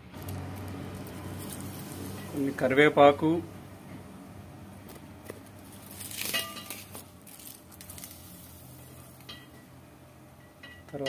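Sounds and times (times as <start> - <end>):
leaves frying in hot oil: 0.0 - 3.5, 4.8 - 9.6.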